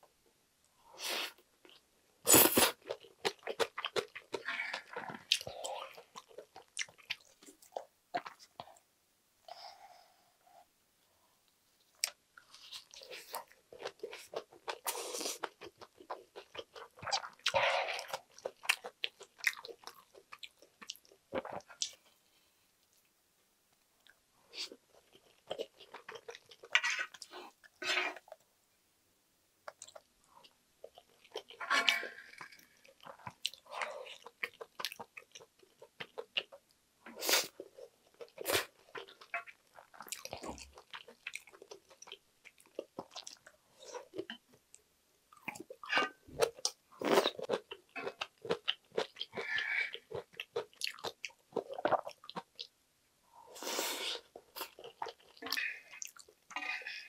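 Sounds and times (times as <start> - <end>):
person chewing: 1.1 - 8.8, 12.0 - 22.0, 24.0 - 28.4, 29.7 - 36.6, 37.2 - 44.4, 45.3 - 52.7, 53.6 - 57.0
wooden spoon scraping a pan: 31.6 - 32.2, 56.6 - 57.0.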